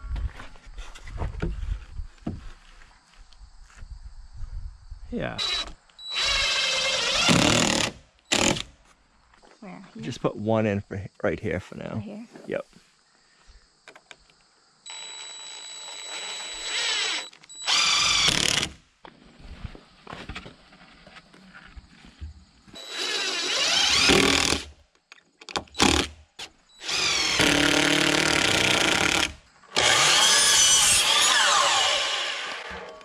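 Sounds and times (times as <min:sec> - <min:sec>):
cordless drill driving screw: 0:05.4 - 0:08.6, 0:14.9 - 0:18.7, 0:22.8 - 0:24.7, 0:26.8 - 0:33.0
miter saw cutting board: 0:22.8 - 0:24.7, 0:26.8 - 0:33.0.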